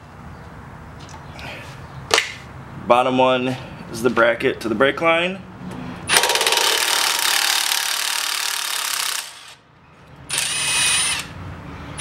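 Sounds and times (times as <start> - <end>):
cordless power tool running: 10.3 - 11.3.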